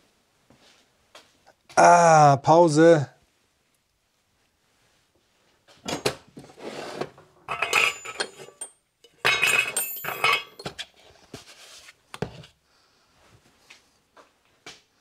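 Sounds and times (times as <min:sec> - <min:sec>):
small metal parts clinking: 0:07.5 - 0:10.7.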